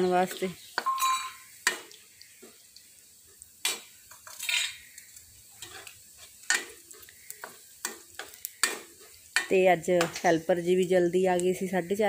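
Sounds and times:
faint sizzle: 0:00.0 - 0:12.0
ladle clinking against pan: 0:00.8 - 0:01.4
ladle scraping metal pan: 0:04.2 - 0:04.8.

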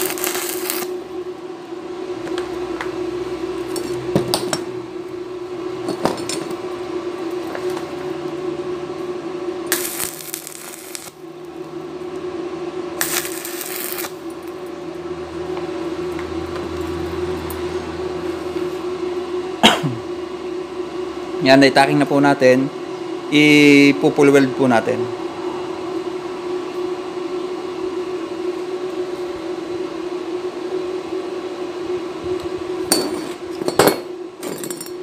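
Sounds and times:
welding arc crackling: 0:00.0 - 0:01.0, 0:09.6 - 0:11.2, 0:13.0 - 0:14.6
steady hum: 0:00.0 - 0:35.0.

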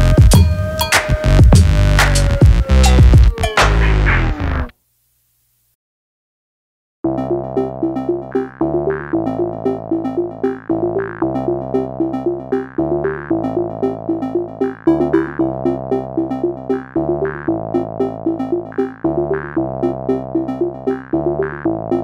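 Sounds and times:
background music with bass line: 0:00.0 - 0:04.7, 0:07.1 - 0:22.0.

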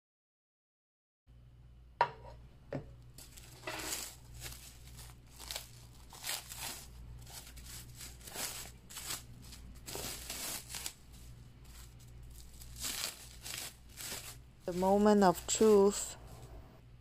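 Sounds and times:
cling film crinkling: 0:03.2 - 0:16.5.

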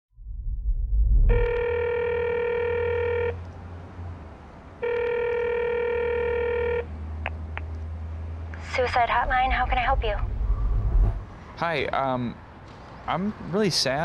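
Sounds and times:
low rumble: 0:00.1 - 0:01.6, 0:08.6 - 0:11.6
low hum: 0:00.1 - 0:01.9, 0:08.5 - 0:11.6
telephone ringback tone: 0:01.3 - 0:03.4, 0:04.8 - 0:06.9.

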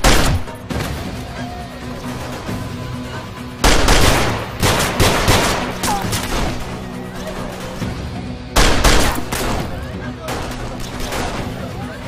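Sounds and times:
gunshots: 0:00.0 - 0:01.1, 0:03.6 - 0:08.0, 0:08.6 - 0:11.7
tense background music: 0:00.0 - 0:12.0.

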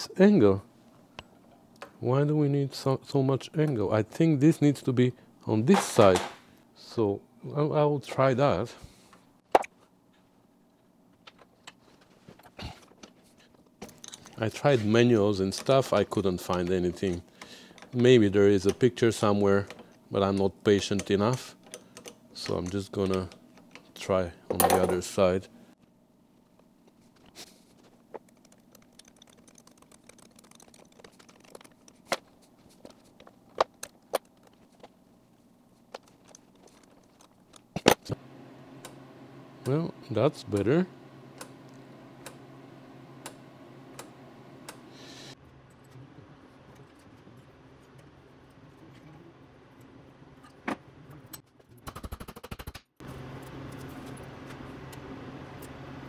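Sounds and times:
steady low hum: 0:00.1 - 0:51.4
metal parts clicking and clinking: 0:13.8 - 0:14.4, 0:35.9 - 0:38.1.

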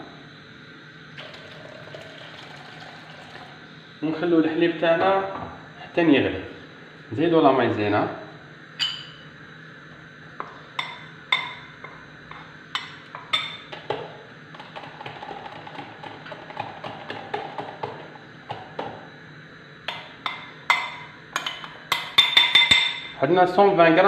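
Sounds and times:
spoon clinking ceramic bowl: 0:08.8 - 0:09.3, 0:10.8 - 0:11.7, 0:19.9 - 0:23.2.

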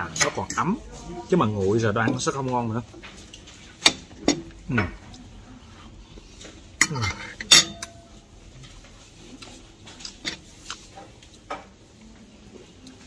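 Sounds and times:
cutlery clinking on a plate: 0:06.8 - 0:08.2.

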